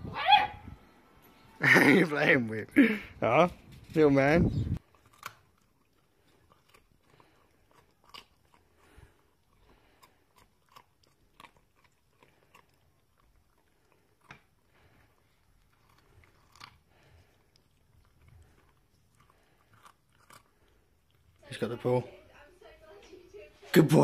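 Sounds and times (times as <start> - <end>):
puppy crunching a carrot: 4.8 - 23.3.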